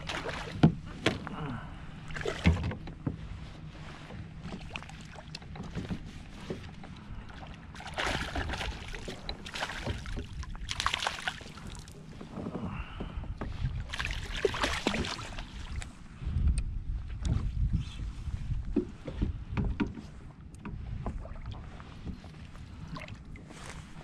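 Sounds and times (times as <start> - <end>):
fish splashing at the surface: 7.8 - 11.7.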